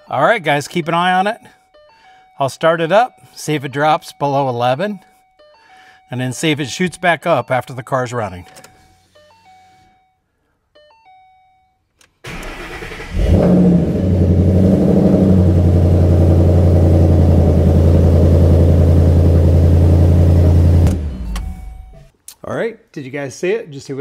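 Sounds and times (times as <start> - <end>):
starter cranking engine: 12.3 - 21.9
car engine revving and idling: 12.3 - 22.0.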